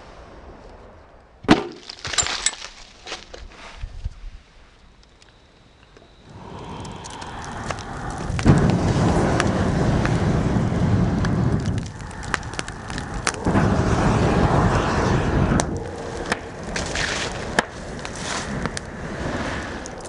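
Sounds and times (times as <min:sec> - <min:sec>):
fire crackling and popping: 0:00.0 - 0:03.4, 0:04.9 - 0:20.0
fire rushing from blown air: 0:06.2 - 0:20.0.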